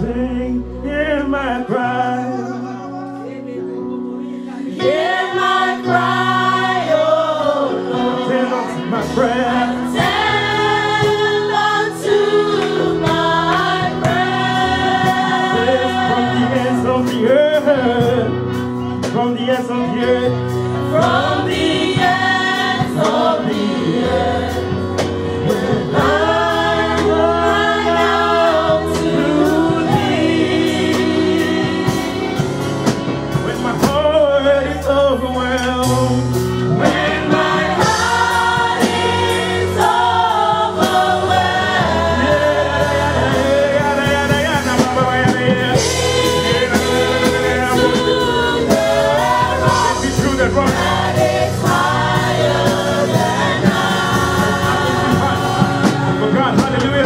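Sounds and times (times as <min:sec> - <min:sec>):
man singing lead: 0:00.0 - 0:03.9, 0:15.6 - 0:21.6, 0:33.3 - 0:37.4, 0:42.9 - 0:51.2, 0:54.4 - 0:57.0
bass notes: 0:00.0 - 0:04.1, 0:04.9 - 0:57.0
women singing backing vocals: 0:04.8 - 0:16.6, 0:21.0 - 0:32.4, 0:36.8 - 0:44.2, 0:45.7 - 0:56.6
drum and cymbal hits: 0:35.6 - 0:57.0.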